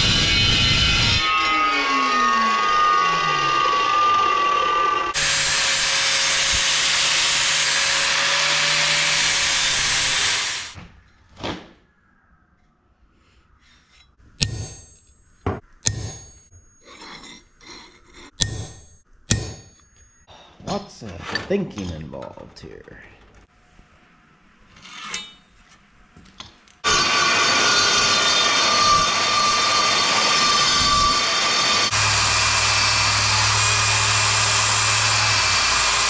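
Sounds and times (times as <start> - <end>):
chop saw grinding steel: 0.0 - 10.8, 13.9 - 15.2, 15.8 - 19.9, 26.8 - 36.0.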